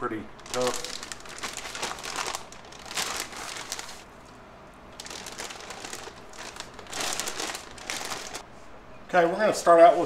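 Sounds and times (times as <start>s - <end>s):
plastic bag crinkling: 0.4s - 4.1s, 4.9s - 8.4s.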